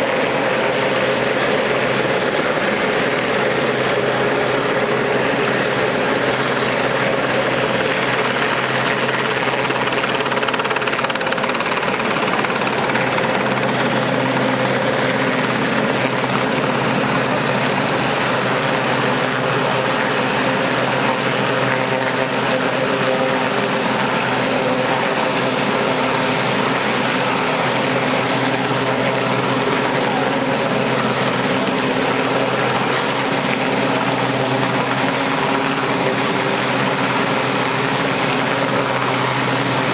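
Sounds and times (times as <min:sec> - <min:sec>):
helicopter droning: 0:00.0 - 0:39.9.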